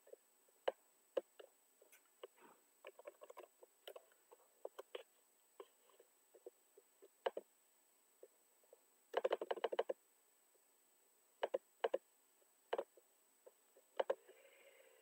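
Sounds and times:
computer mouse and keyboard clicks: 0.7 - 5.8, 9.1 - 10.0, 11.4 - 12.0, 13.9 - 14.3.

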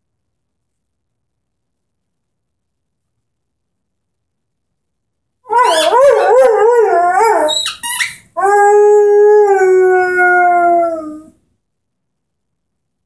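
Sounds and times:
dog howling: 5.5 - 7.7, 8.4 - 11.4
squeaky ball squeak: 7.5 - 8.3.

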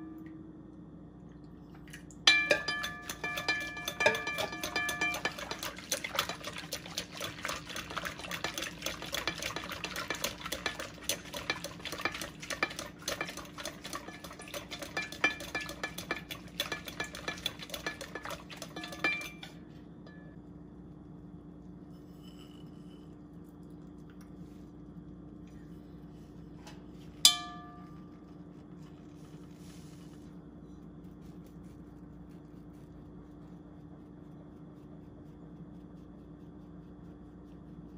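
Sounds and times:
faint steady hum: 0.0 - 37.9
whisk clicking against glass bowl: 2.3 - 19.5.

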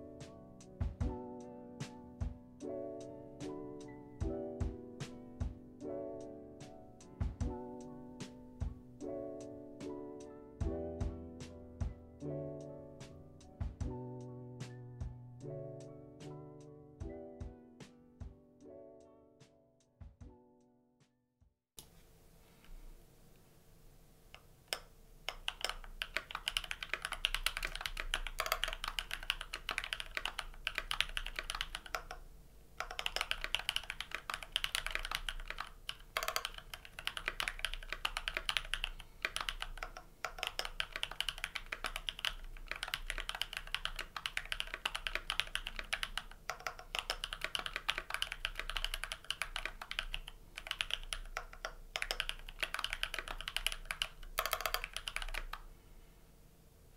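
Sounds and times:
mechanical keyboard typing: 24.4 - 55.7.

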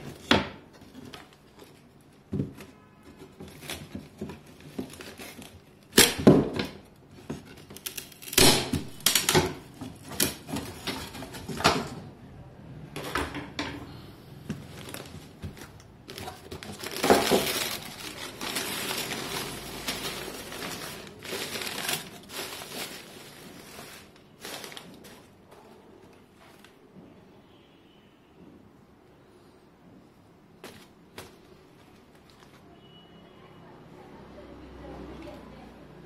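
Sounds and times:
paper rustling and crinkling: 0.0 - 11.9, 14.5 - 26.8, 30.6 - 32.7
wooden slats cracking and snapping: 5.9 - 6.8, 7.7 - 11.8.

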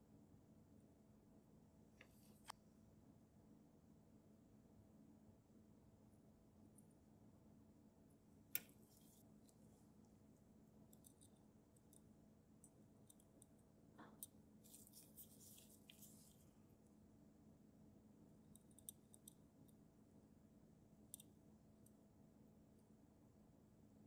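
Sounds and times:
faint room hum: 0.0 - 24.0
tiny clicks of tweezers on metal: 10.9 - 14.4, 18.5 - 19.8, 21.1 - 22.0.

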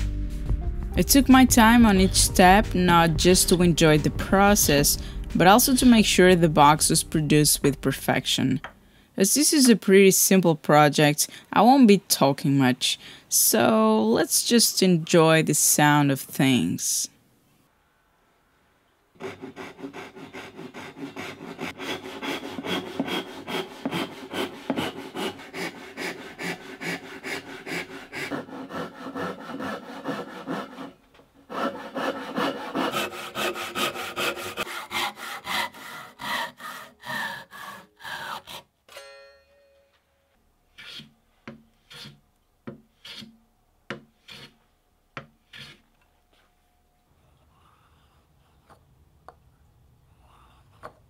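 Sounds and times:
hand saw cutting wood: 19.2 - 38.7, 40.7 - 44.6, 45.2 - 45.9.

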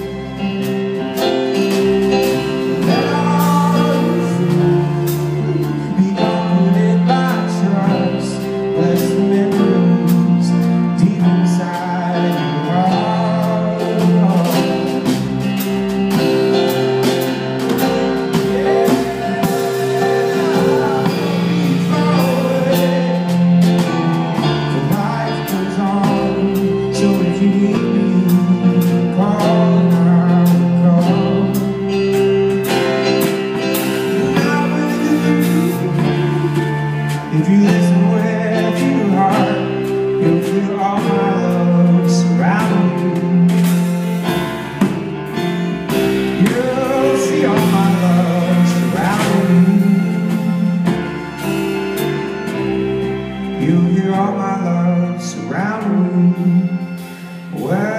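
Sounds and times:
man singing: 0.0 - 51.6, 53.5 - 57.9
live band playing slow song: 0.0 - 57.9.

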